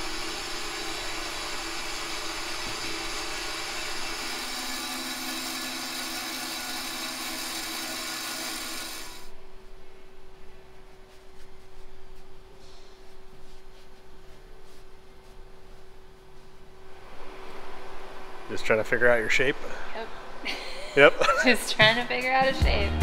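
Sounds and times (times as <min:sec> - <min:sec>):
band saw cutting foam: 0:00.0 - 0:09.3.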